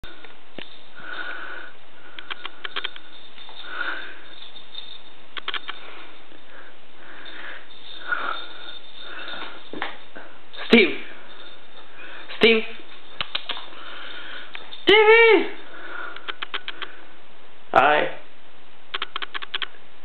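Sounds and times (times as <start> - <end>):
soft breathy sniffing: 5.7 - 9.8.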